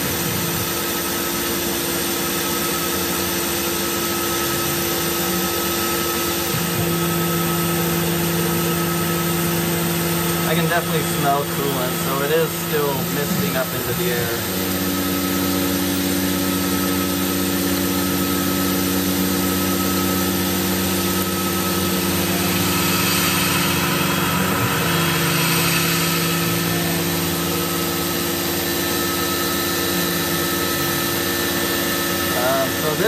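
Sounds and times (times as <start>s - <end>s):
milling machine running: 0.0s - 33.0s
coolant mist hissing: 6.6s - 33.0s.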